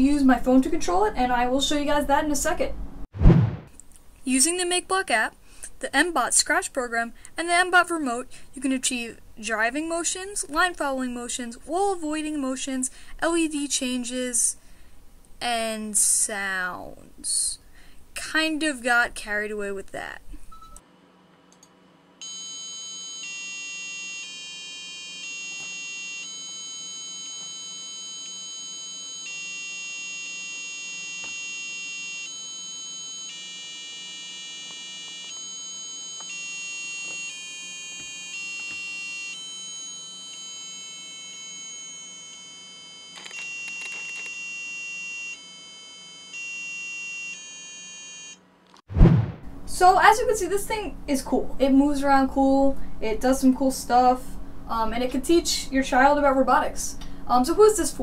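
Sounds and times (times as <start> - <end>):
electronic buzzer beep tune: 22.2 - 48.4.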